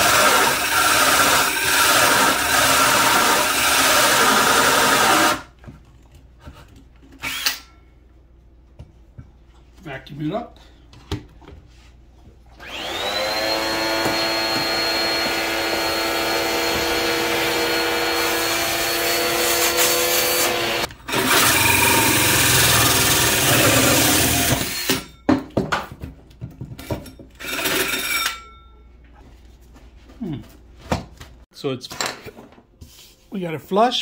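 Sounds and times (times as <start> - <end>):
drill with hole saw cutting: 0.0 - 5.5, 7.2 - 7.7, 12.6 - 25.1, 27.4 - 28.4
handheld vacuum running: 12.6 - 24.9.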